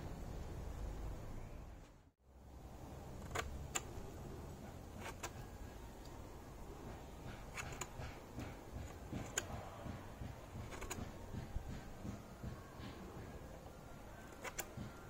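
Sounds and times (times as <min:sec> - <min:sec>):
knife shaving wood: 0:03.0 - 0:06.3, 0:07.1 - 0:09.7, 0:10.3 - 0:12.0, 0:13.5 - 0:15.0.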